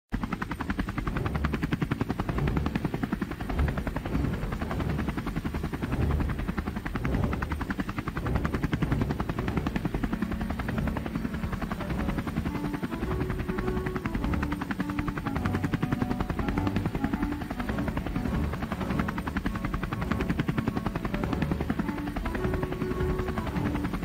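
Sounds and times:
rapid rotor chop: 0.2 - 24.0
low rumble: 1.0 - 12.6.

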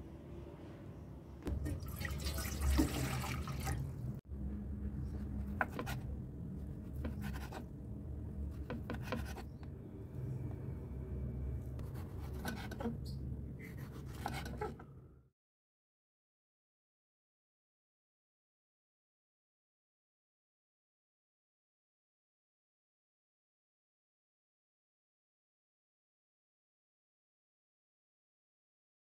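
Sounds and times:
low hum: 3.6 - 14.0
knife cutting on wooden board: 13.6 - 14.8.

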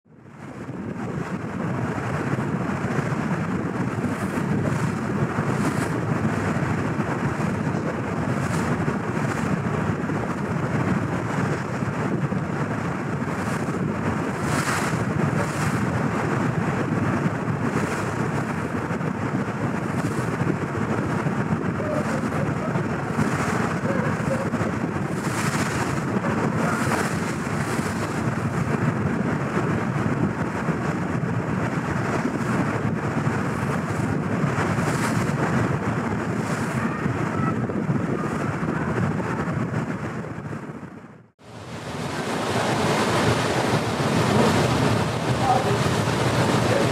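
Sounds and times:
ferry low rumble: 0.1 - 46.9
wind buffeting microphone: 0.1 - 46.9
sea water washing past: 13.1 - 16.4, 41.4 - 46.9.

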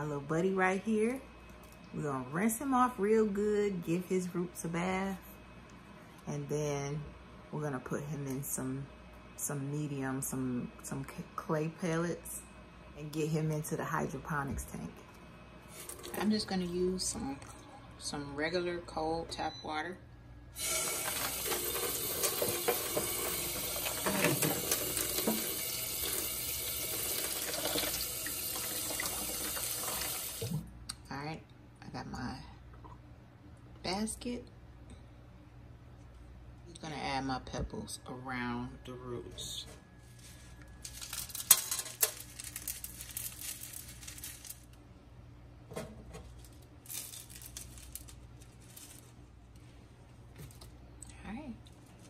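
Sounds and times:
clay pebbles rattling: 40.8 - 44.7.

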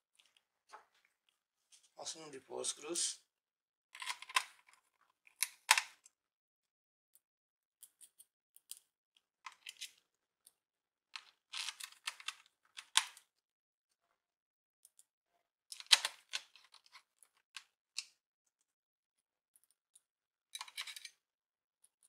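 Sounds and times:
small screwdriver clicking and scraping: 7.8 - 8.9, 20.6 - 21.2.

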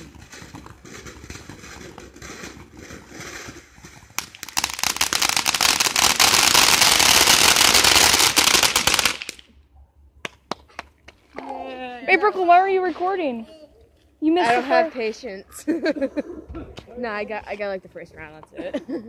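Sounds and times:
firework hissing and crackling: 4.2 - 9.4.

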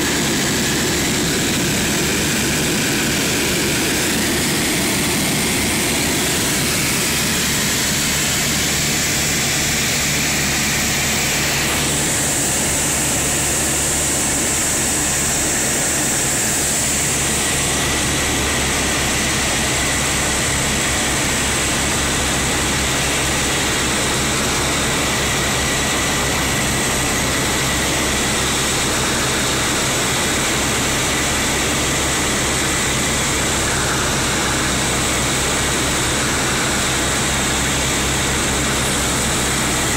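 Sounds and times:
aircraft engines and propellers droning: 0.0 - 39.9.

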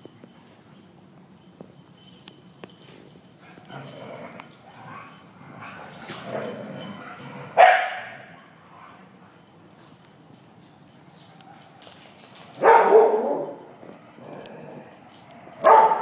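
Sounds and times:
dogs playing: 0.0 - 16.0
dog barking: 7.6 - 8.2, 12.6 - 13.6, 15.6 - 16.0
claws clicking on hard floor: 9.2 - 15.8.

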